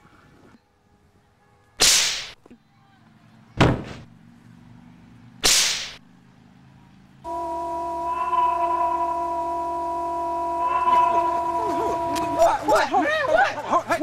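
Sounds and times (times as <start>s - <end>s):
whip-like swishing hits: 1.8s - 2.4s, 5.4s - 6.0s
pitched drone with several tones: 7.3s - 12.7s.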